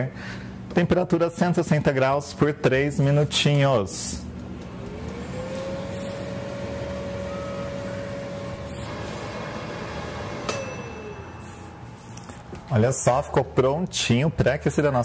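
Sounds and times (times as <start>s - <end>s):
air fryer fan whine: 0.0s - 15.0s
timer bell click and ring: 10.5s - 12.3s.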